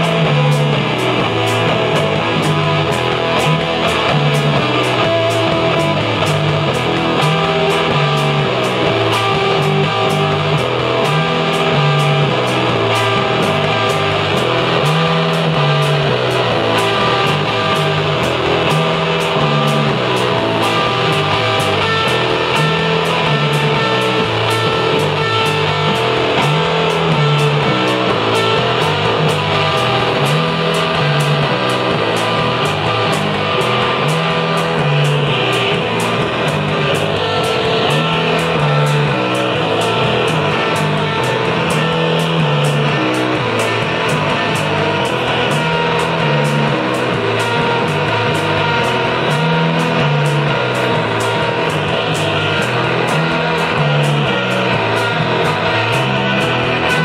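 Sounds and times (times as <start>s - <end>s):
drum beat: 0.0s - 57.0s
electric guitar: 0.0s - 57.0s
low repeating riff: 0.0s - 57.0s.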